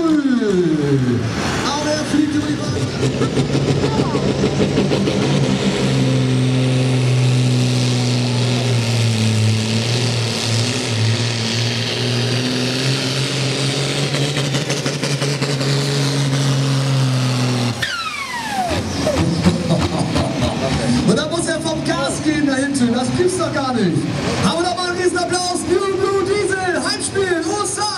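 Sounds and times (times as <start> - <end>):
diesel tractor engine at full throttle: 0.0 - 27.9
turbocharger whine spooling down: 0.4 - 23.5.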